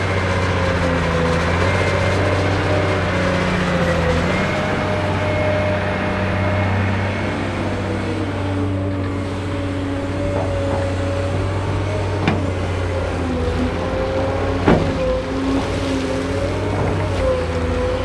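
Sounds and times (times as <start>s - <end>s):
excavator engine and hydraulics: 0.0s - 18.0s.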